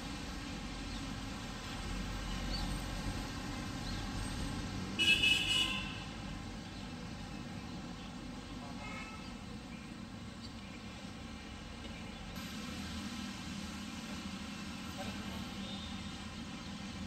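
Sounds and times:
vehicle horn toots: 0:05.0 - 0:06.1.

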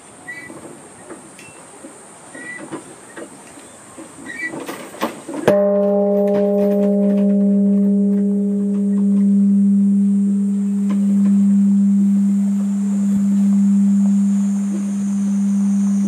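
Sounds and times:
large bell struck: 0:05.5 - 0:16.0.

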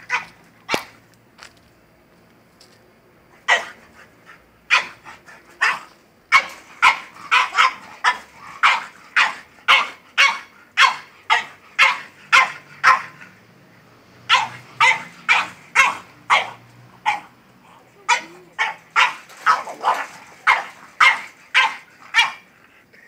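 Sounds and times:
dog barking: 0:03.5 - 0:03.8, 0:04.7 - 0:05.0, 0:05.6 - 0:13.2, 0:14.3 - 0:17.3, 0:18.1 - 0:22.5.

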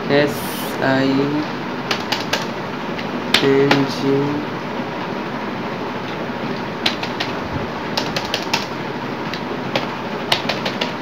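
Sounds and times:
background hiss: 0:00.0 - 0:11.0
keyboard keys clicking: 0:01.9 - 0:02.5, 0:06.8 - 0:07.4, 0:08.0 - 0:08.7, 0:09.3 - 0:11.0.

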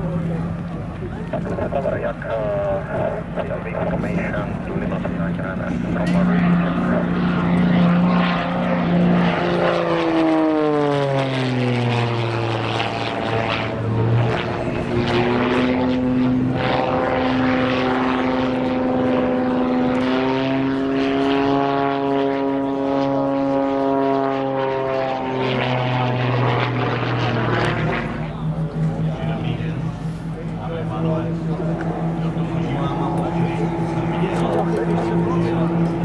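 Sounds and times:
propeller plane engine at high power: 0:00.0 - 0:36.0.

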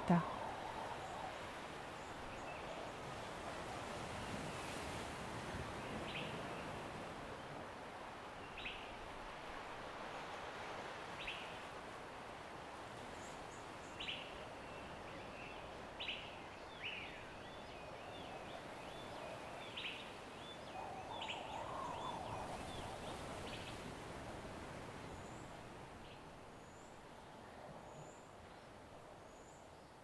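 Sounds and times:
birds chirping and warbling: 0:13.9 - 0:23.9.

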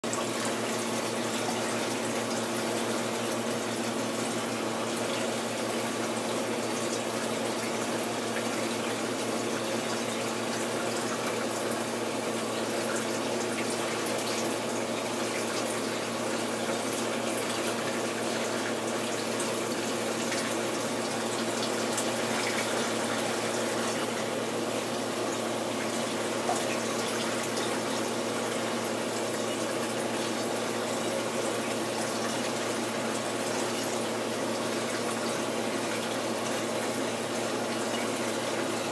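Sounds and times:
water rushing in aquarium: 0:00.0 - 0:38.9
steady hum: 0:12.6 - 0:29.8.

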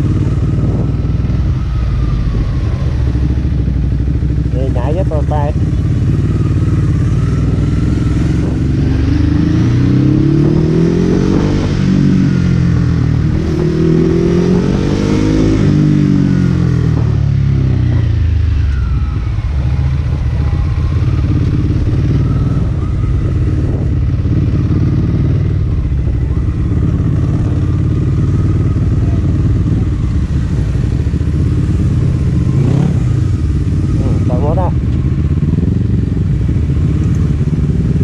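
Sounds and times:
motorcycle engine revving: 0:00.0 - 0:38.0.

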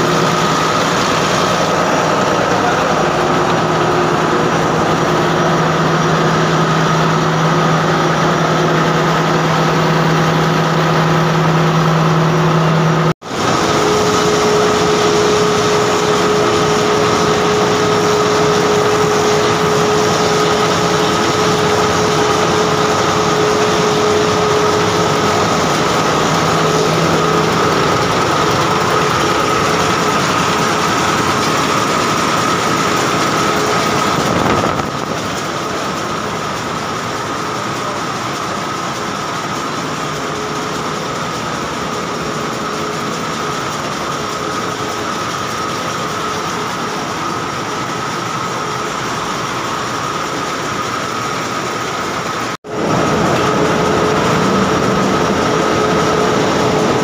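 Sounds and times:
diesel engines running: 0:00.0 - 0:57.0
steady hum: 0:00.0 - 0:57.0.

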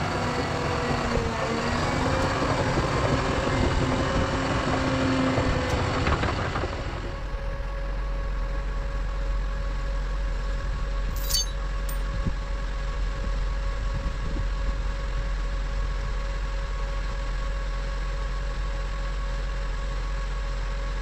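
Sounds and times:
metallic clinks: 0:11.2 - 0:12.0.

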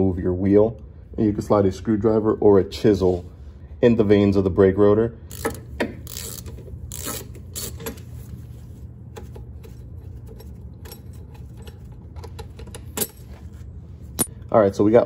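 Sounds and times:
steady low hum: 0:00.0 - 0:15.0
metallic clicks and scrapes: 0:05.3 - 0:08.5, 0:09.1 - 0:14.3.

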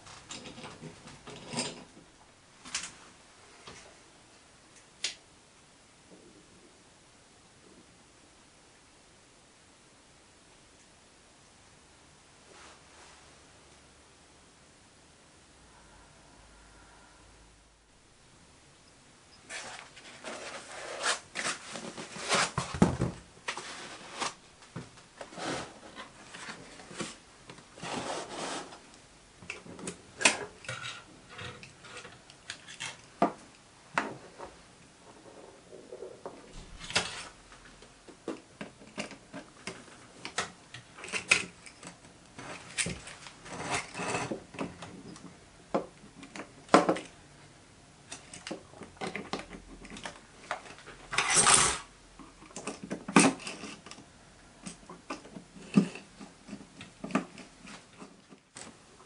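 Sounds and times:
scrape: 0:12.5 - 0:13.3, 0:19.5 - 0:22.7, 0:23.5 - 0:24.4, 0:25.3 - 0:27.2, 0:27.8 - 0:28.8, 0:36.5 - 0:37.4, 0:43.4 - 0:44.4.

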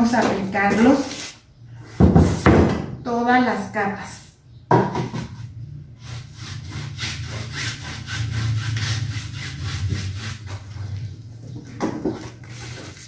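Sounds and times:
paintbrush scrubbing canvas: 0:06.1 - 0:11.0.

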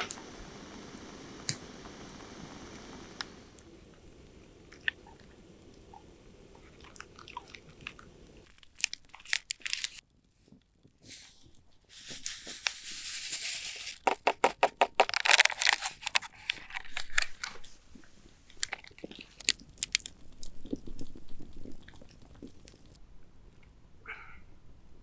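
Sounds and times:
short hiss: 0:00.0 - 0:03.5
crinkling handling noise: 0:06.7 - 0:23.0.

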